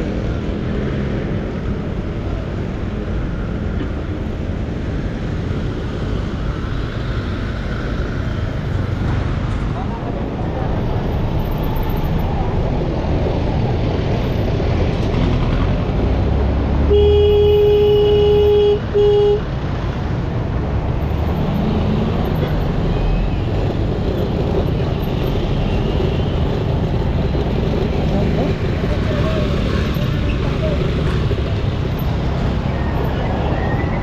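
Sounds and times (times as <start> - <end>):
street traffic: 0.0 - 34.0
vehicle horn honking: 16.9 - 19.4.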